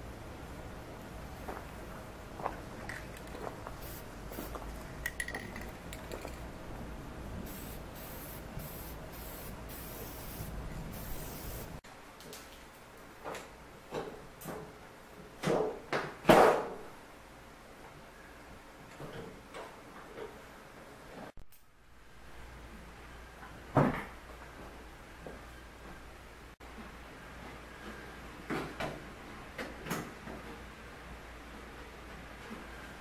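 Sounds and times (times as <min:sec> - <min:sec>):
aerosol spray can hissing: 0:03.8 - 0:04.6, 0:07.5 - 0:11.8.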